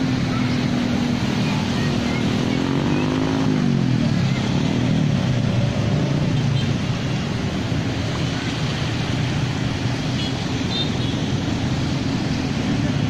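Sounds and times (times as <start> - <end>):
small motorcycle engines running: 0.0 - 5.6
traffic noise: 0.0 - 13.0
water splashing: 0.0 - 13.0.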